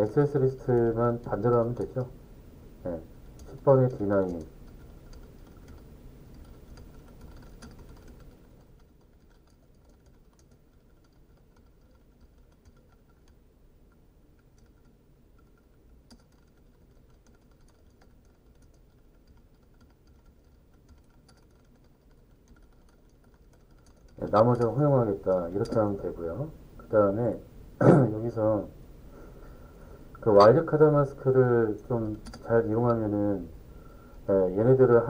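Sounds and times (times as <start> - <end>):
low background hum: 0.0 - 35.0
typing on computer keyboard: 3.4 - 24.8, 25.6 - 26.0, 32.0 - 33.2.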